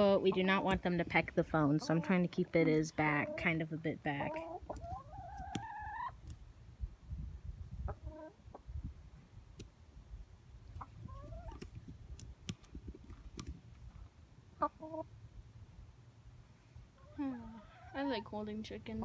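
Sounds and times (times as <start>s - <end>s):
hen clucking: 0.0s - 6.2s, 7.8s - 8.7s, 10.6s - 11.7s, 14.6s - 15.1s, 17.0s - 19.0s.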